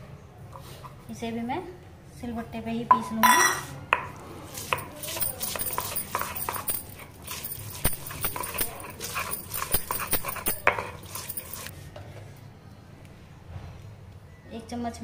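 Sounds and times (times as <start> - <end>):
gritty stone scraping: 4.5 - 11.7.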